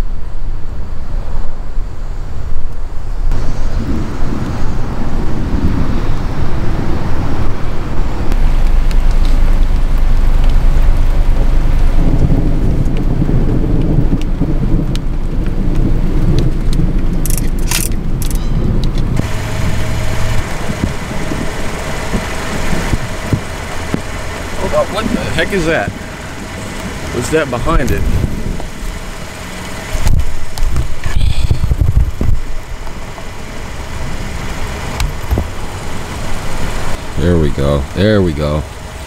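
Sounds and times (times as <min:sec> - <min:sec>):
loud low rumbling: 0:00.0 - 0:39.0
sharp clicks: 0:15.8 - 0:19.1.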